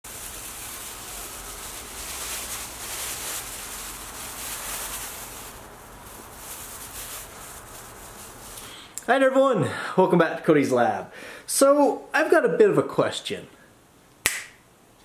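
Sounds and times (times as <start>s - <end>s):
plastic bag rustling: 0.0s - 8.9s.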